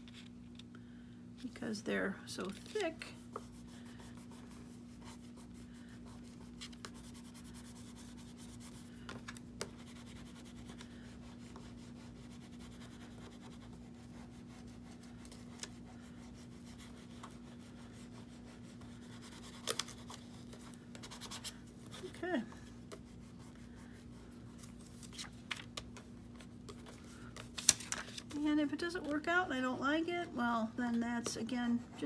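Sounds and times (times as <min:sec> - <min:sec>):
steady low hum: 0:00.0 - 0:32.0
foam tool rubbing on paper: 0:03.0 - 0:09.0.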